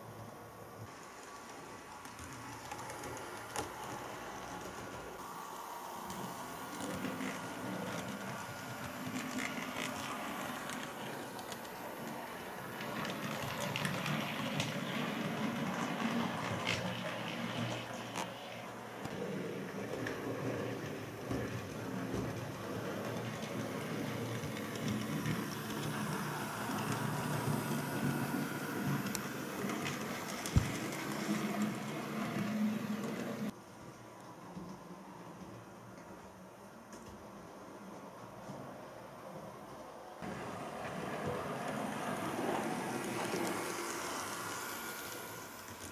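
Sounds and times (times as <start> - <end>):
model train motors whirring: 0.0 - 33.6, 40.2 - 45.9
wheels rumbling on rail: 40.2 - 45.9.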